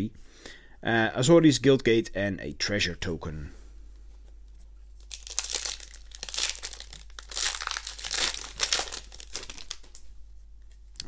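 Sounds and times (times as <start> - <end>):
foil wrapper crinkling: 5.0 - 10.1.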